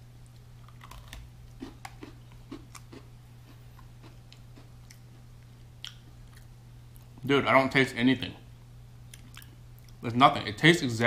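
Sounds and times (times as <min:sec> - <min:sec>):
steady low hum: 0:00.0 - 0:11.0
cookie crunching: 0:00.2 - 0:07.1.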